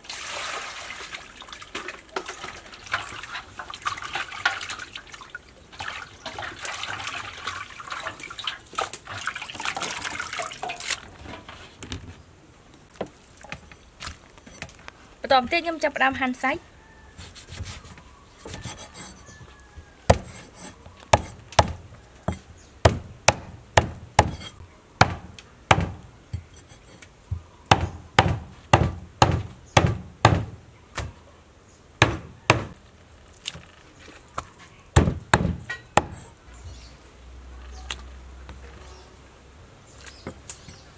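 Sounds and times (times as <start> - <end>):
cleaver chopping on wooden block: 20.1 - 26.5, 27.7 - 31.1, 32.0 - 32.8, 35.0 - 36.2.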